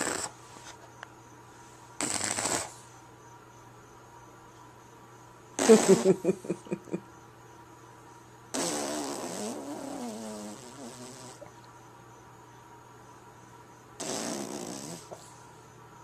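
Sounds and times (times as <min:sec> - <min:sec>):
man making mouth noises: 0:05.6 - 0:06.4.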